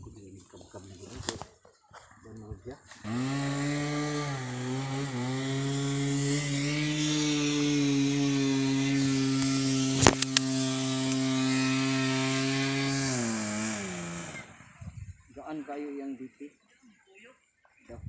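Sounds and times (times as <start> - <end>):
small engine running: 2.9 - 15.2
sharp clicks: 9.4 - 10.5.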